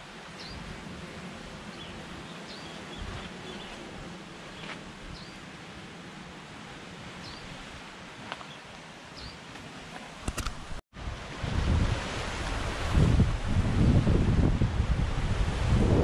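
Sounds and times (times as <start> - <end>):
wind on microphone: 0.4 - 5.4, 10.2 - 16.0
surf rumbling: 9.8 - 16.0.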